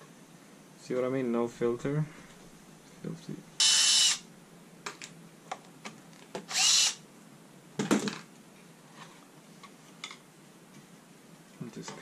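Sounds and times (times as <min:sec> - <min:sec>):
cordless screwdriver whirr: 0:03.6 - 0:04.2, 0:06.5 - 0:07.0.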